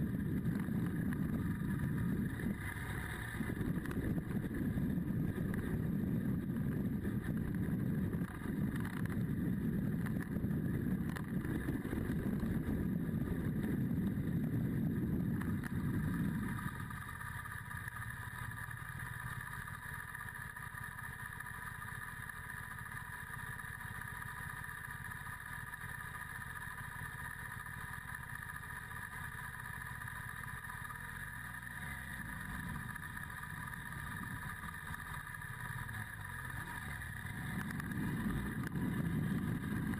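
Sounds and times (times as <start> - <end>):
motorcycle engine idling: 0.0 - 39.9
motorcycle riding on gravel: 0.0 - 39.9
wind noise: 3.3 - 16.6.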